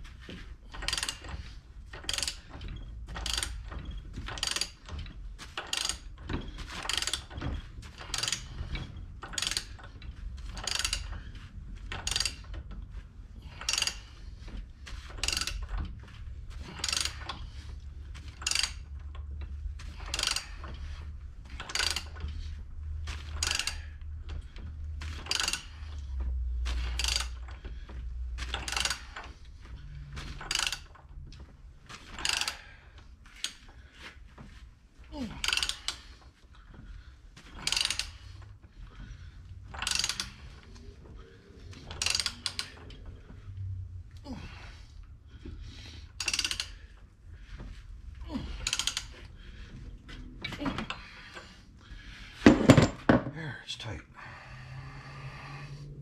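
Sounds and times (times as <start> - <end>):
low steady rumble: 0.0 - 56.0
ratchet wrench clicking: 0.7 - 1.4, 2.0 - 6.1, 6.8 - 9.9, 10.5 - 12.6, 13.6 - 14.2, 15.1 - 15.8, 16.6 - 17.6, 18.2 - 19.2, 19.9 - 20.8, 21.5 - 22.5, 23.1 - 24.0, 25.0 - 27.6, 28.4 - 29.2, 30.0 - 31.1, 32.2 - 32.7, 35.4 - 36.0, 37.5 - 38.4, 39.7 - 40.6, 41.8 - 42.9, 46.1 - 46.9, 48.5 - 49.2.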